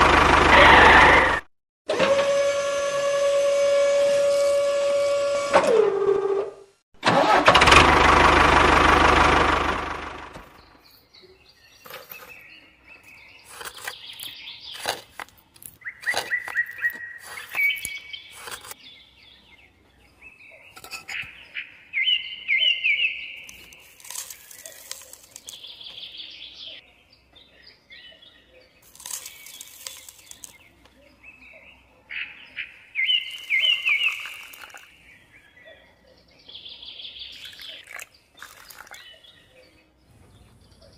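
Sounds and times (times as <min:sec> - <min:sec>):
birds chirping: 0:10.4 - 0:40.9.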